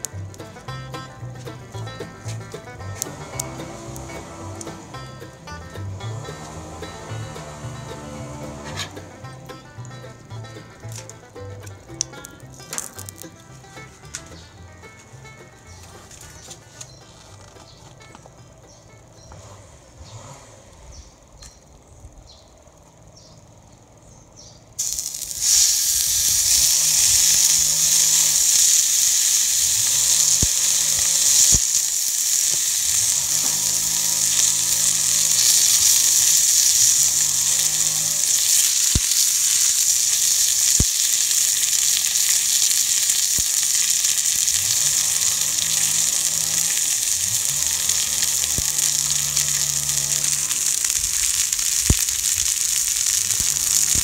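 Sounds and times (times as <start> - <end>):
steak sizzling on a hot griddle: 0.0 - 9.0, 12.0 - 13.4, 24.8 - 54.0.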